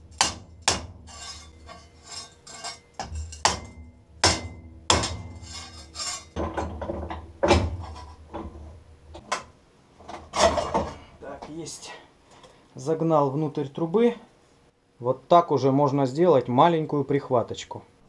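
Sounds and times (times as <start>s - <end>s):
hammer striking metal tube: 0.0s - 8.0s.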